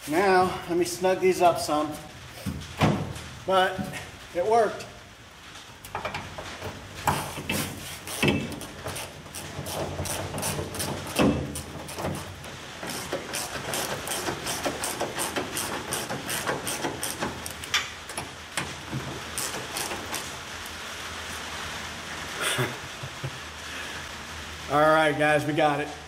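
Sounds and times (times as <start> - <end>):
ratchet wrench clicking: 12.9 - 17.8.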